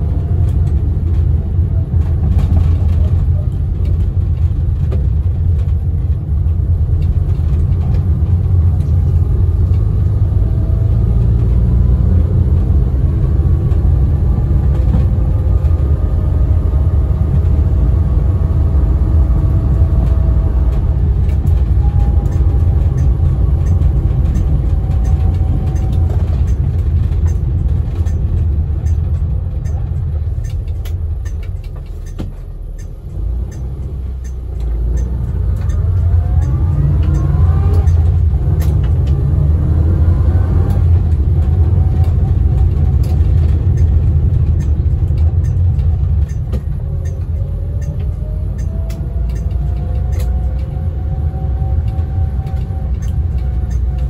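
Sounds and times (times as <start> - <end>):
car engine rumbling: 0.0 - 54.0
gearbox whine: 6.5 - 54.0.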